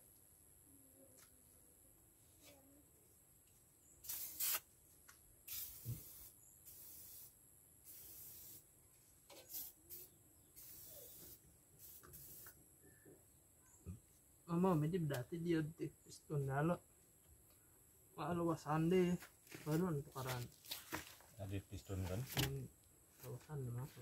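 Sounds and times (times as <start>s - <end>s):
aerosol spray hissing: 4.0s - 4.7s, 5.5s - 8.6s, 9.5s - 12.6s.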